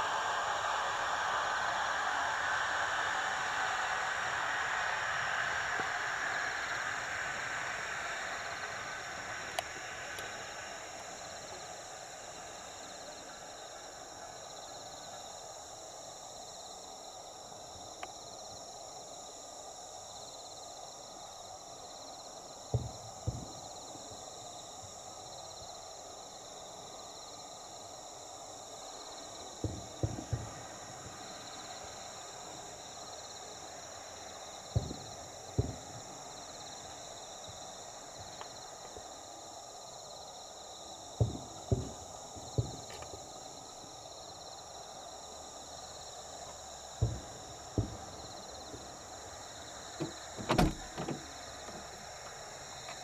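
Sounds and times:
faint hiss: 0.0s - 53.0s
distant firework booms: 29.6s - 32.2s, 34.7s - 36.5s, 41.2s - 43.4s, 47.0s - 52.0s.

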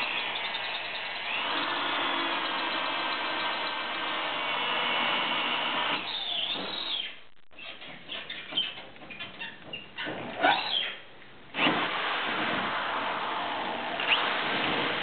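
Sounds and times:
scraping and squeaking: 6.0s - 11.1s.

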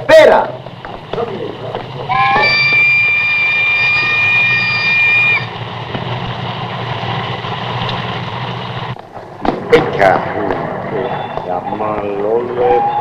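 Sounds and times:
low background rumble: 0.0s - 13.0s
train whistle chord: 2.1s - 5.5s.

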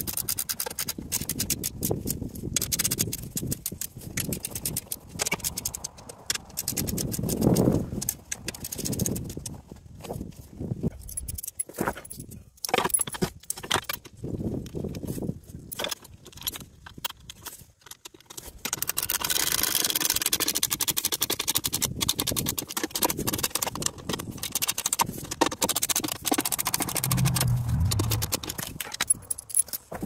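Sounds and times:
fast clicking: 0.0s - 9.5s, 17.9s - 29.8s
metal fasteners clinking: 10.9s - 14.1s, 15.6s - 19.4s, 28.1s - 30.0s.

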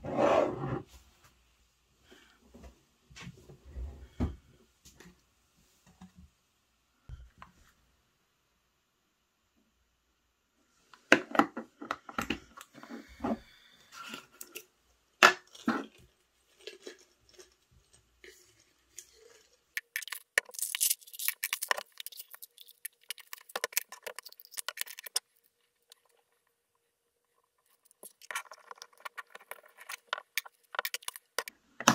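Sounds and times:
tablets rattling out of bottle: 19.8s - 25.3s, 27.9s - 31.5s.

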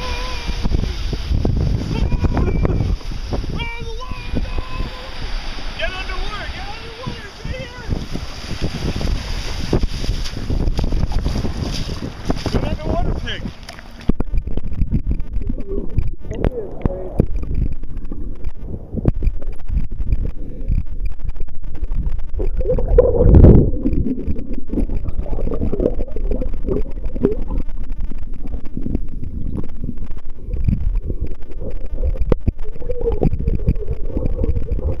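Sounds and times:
underwater rumble and sloshing: 0.0s - 35.0s.

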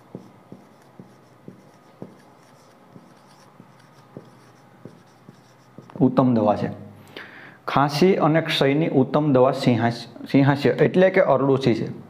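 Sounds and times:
marker tip tapping board: 0.0s - 6.0s
marker writing on whiteboard: 0.0s - 6.2s.

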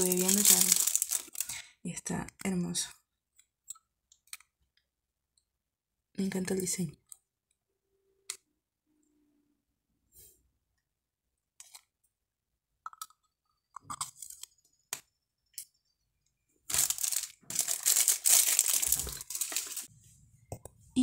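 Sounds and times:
packaging crinkling and rustling: 0.0s - 1.6s, 16.7s - 19.9s.

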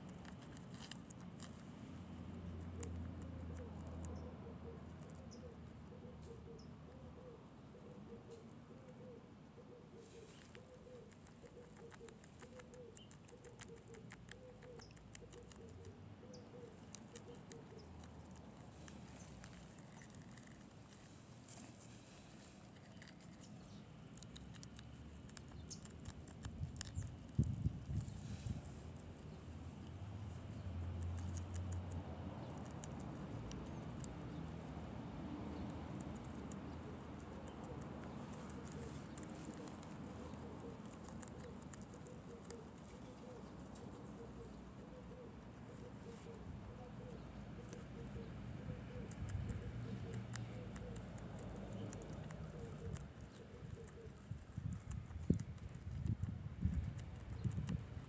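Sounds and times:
guinea pig nibbling: 0.0s - 7.1s, 9.8s - 58.0s
dove cooing: 3.4s - 18.0s, 37.4s - 54.3s.

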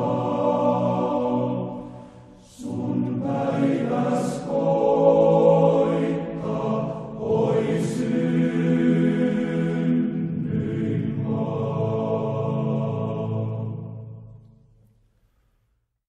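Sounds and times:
choir singing held chords: 0.0s - 14.7s.

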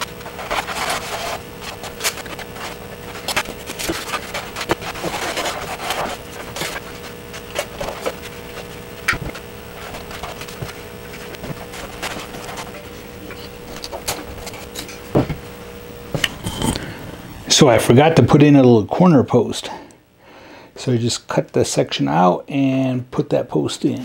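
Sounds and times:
knife scratching foam board: 0.0s - 12.8s.

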